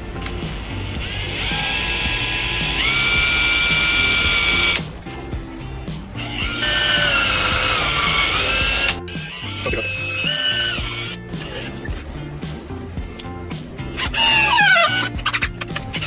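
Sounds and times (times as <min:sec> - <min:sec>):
cordless drill whining: 0:01.0 - 0:04.8, 0:06.2 - 0:11.2.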